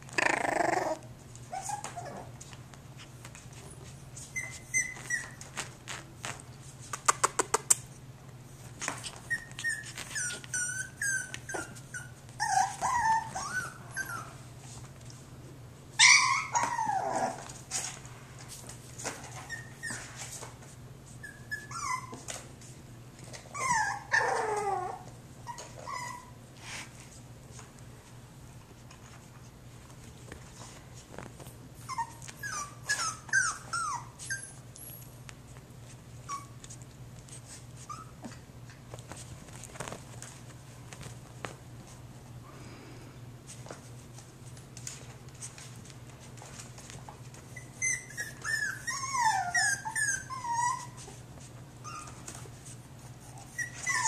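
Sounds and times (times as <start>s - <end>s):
puppy high-pitched cries: 0.1s - 2.3s, 4.3s - 5.5s, 9.3s - 14.4s, 16.0s - 17.4s, 21.2s - 22.2s, 23.5s - 26.4s, 31.8s - 35.0s, 47.5s - 51.1s, 53.5s - 54.0s.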